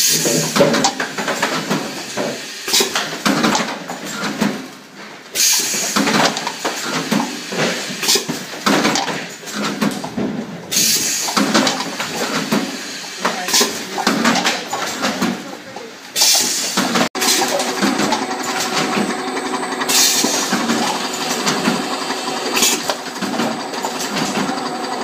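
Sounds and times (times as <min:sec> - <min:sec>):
pneumatic air hiss: 0:01.8 - 0:03.0, 0:05.3 - 0:08.3, 0:10.7 - 0:13.9, 0:16.2 - 0:17.5, 0:19.9 - 0:20.7, 0:22.4 - 0:22.9
machine rattling and clatter: 0:05.4 - 0:25.0.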